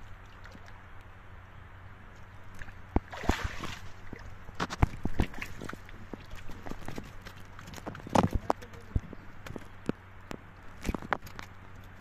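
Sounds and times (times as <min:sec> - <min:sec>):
water splashing: 0:00.0 - 0:01.0, 0:02.1 - 0:09.6.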